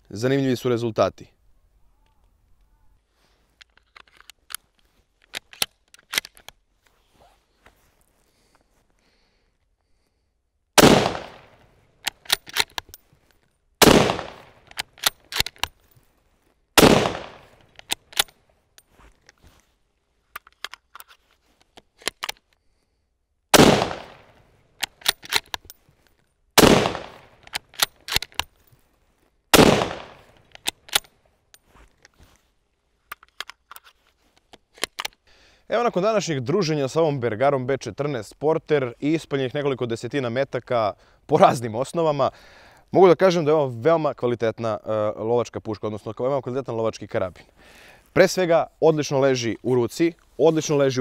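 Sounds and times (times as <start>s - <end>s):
rifle bolt metallic clicks: 3.6s - 6.6s, 10.8s - 16.0s, 16.8s - 19.5s, 20.3s - 22.6s, 23.6s - 28.8s, 29.6s - 32.3s, 33.1s - 35.2s
rifle shots: 10.8s - 11.6s, 13.8s - 15.1s, 16.8s - 17.6s, 23.5s - 24.4s, 26.6s - 27.9s, 29.5s - 30.4s.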